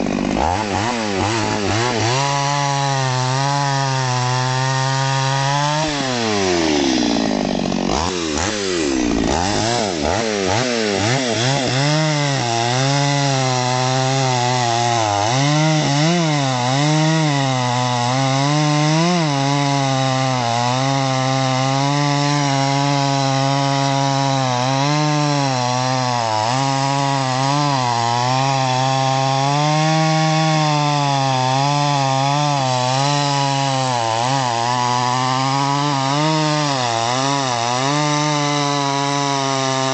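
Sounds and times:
chainsaw cutting through log: 0:00.0 - 0:39.9.

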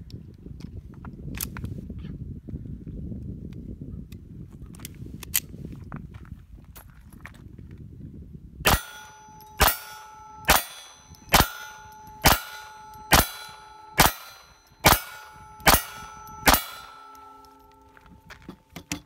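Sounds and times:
metallic ring of steel target: 0:08.6 - 0:19.0
pistol shots: 0:08.7 - 0:17.8.

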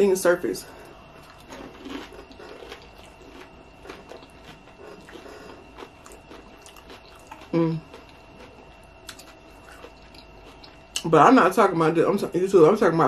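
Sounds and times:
close-up chewing chips: 0:00.8 - 0:11.2.

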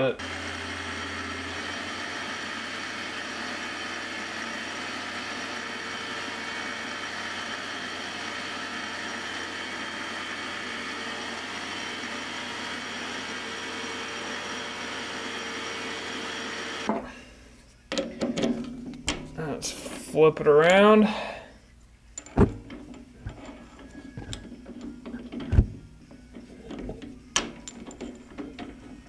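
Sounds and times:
metal lathe motor whine: 0:00.2 - 0:16.9.

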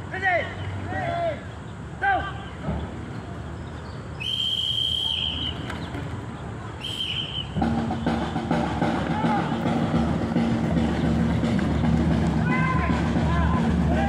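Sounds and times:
whistle blasts: 0:04.2 - 0:05.7, 0:06.8 - 0:08.5.

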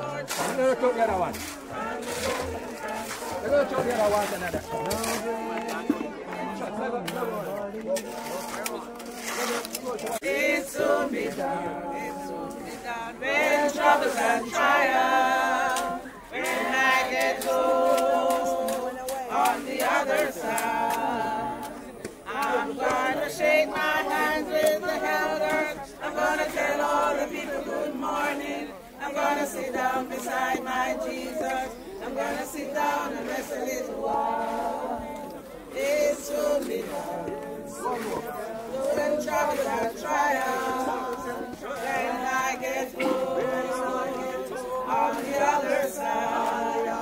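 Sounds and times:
group singing a hymn unaccompanied: 0:00.0 - 0:47.0.

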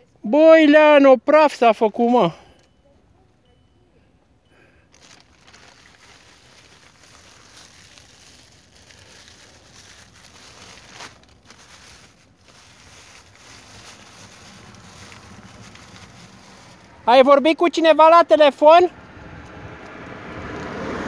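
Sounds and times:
packaging rustling and crinkling: 0:04.9 - 0:17.0.

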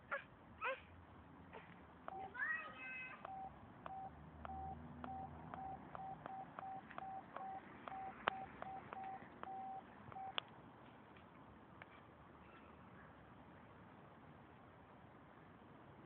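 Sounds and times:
faint short electronic beeps: 0:02.1 - 0:02.4, 0:03.2 - 0:10.4.

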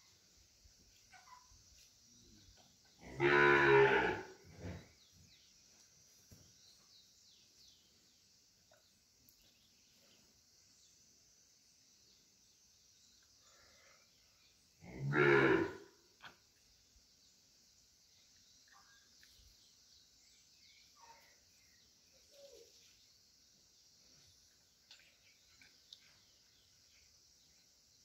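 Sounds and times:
cow mooing: 0:03.0 - 0:04.4, 0:14.9 - 0:15.8.

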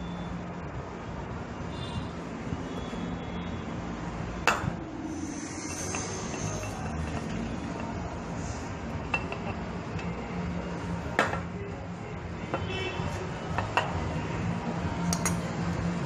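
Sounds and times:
steady low hum: 0:00.0 - 0:11.1.

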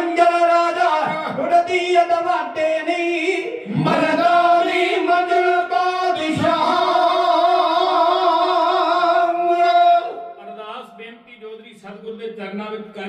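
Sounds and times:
group singing in chorus: 0:00.0 - 0:10.4.

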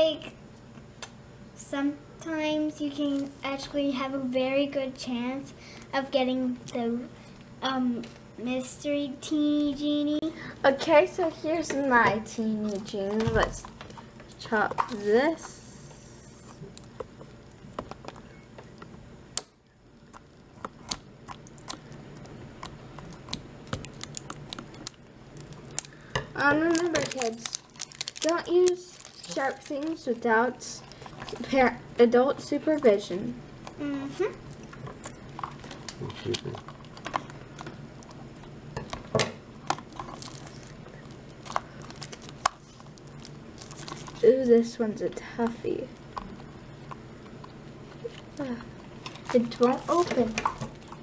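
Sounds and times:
plastic handling: 0:23.0 - 0:30.2, 0:38.8 - 0:44.7, 0:47.9 - 0:51.0.

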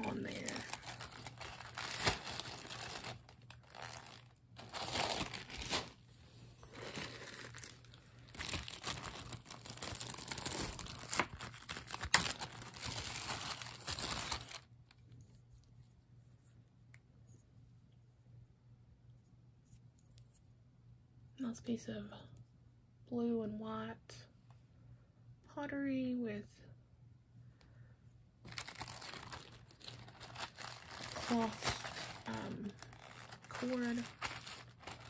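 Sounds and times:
plastic bag crinkling: 0:00.0 - 0:14.7, 0:28.5 - 0:35.0.

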